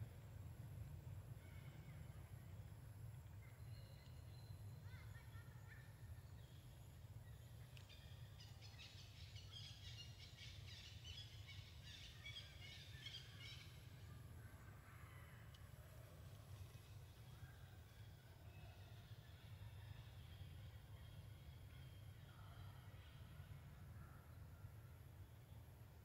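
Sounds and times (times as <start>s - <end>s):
small birds chirping: 3.3s - 14.2s.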